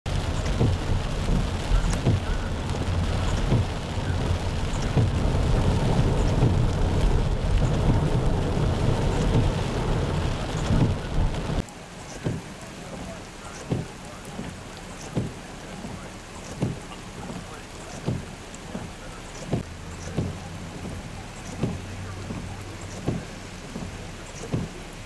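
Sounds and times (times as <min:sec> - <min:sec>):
heavy rain: 0:00.0 - 0:25.0
tyres ploughing through floodwater: 0:00.0 - 0:25.0
water spraying against car: 0:00.1 - 0:25.0.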